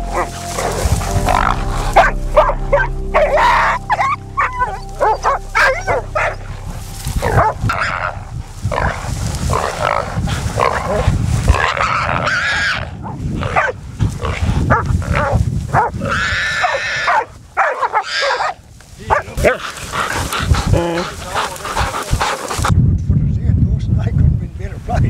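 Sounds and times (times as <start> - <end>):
dogs barking: 0.0 - 6.5, 7.2 - 13.8, 14.7 - 22.7
wild boar squealing: 7.2 - 14.4, 15.8 - 22.7.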